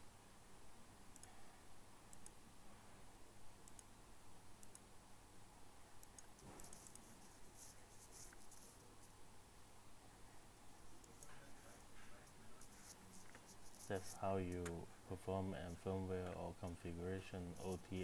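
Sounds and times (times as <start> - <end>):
computer mouse clicks: 1.1 - 1.4, 2.1 - 2.4, 3.6 - 3.9, 4.6 - 4.9, 6.0 - 7.1.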